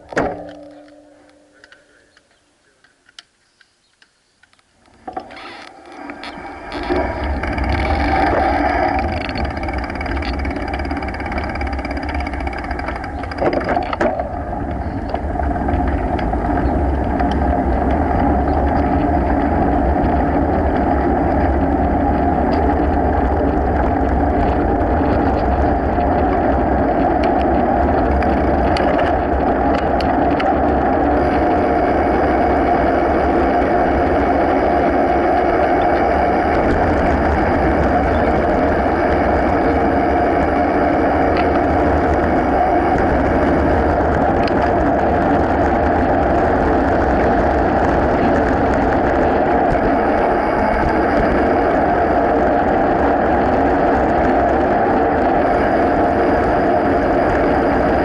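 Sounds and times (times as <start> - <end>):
clicks and knocks: 0.0 - 2.3
bike tyres rolling on asphalt: 0.0 - 58.0
wind buffeting microphone: 4.9 - 58.0.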